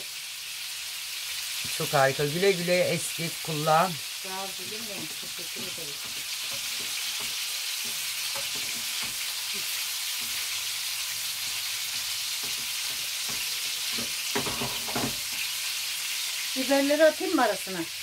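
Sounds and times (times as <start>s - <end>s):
meatballs sizzling in oil: 0.0s - 18.0s.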